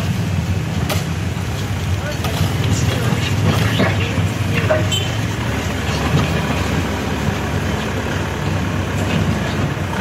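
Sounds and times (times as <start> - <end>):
diesel engine running: 0.0 - 10.0
loader bucket digging dirt: 2.1 - 10.0.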